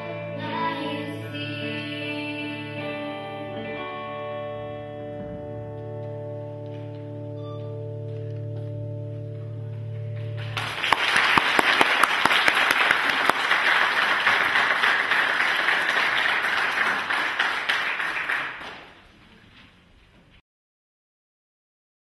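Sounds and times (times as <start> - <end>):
congregation applauding: 10.4 - 19.2.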